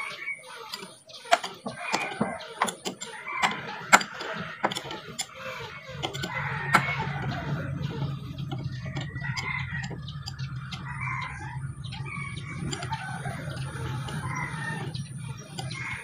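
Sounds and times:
clucking calls: 0:00.0 - 0:16.0
wrench clinking on metal nuts: 0:00.7 - 0:07.4
low steady hum: 0:02.7 - 0:16.0.

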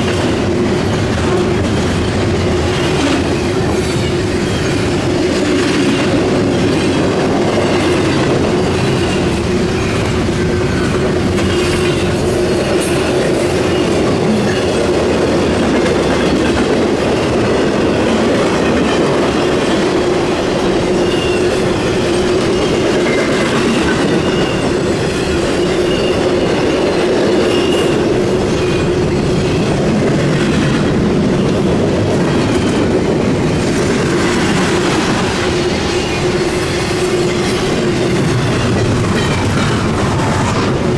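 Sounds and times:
freight train wheels clattering: 0:00.0 - 0:40.9
faint high wheel squeals: 0:13.6 - 0:14.7, 0:20.9 - 0:29.7.

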